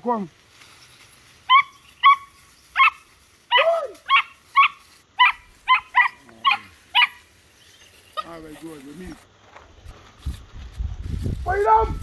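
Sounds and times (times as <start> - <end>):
dog yelping: 1.5 - 7.2.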